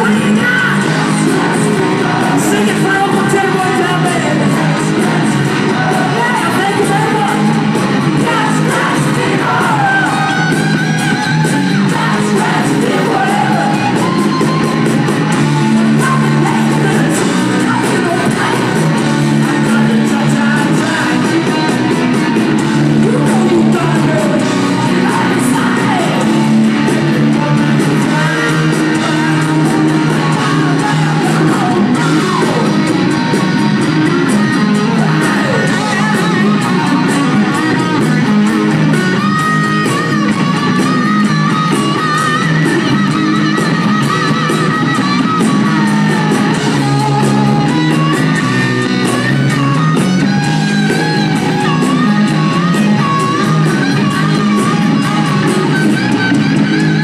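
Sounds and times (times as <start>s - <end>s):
drum kit: 0.0s - 57.0s
electric guitars: 0.0s - 57.0s
person singing: 0.0s - 57.0s.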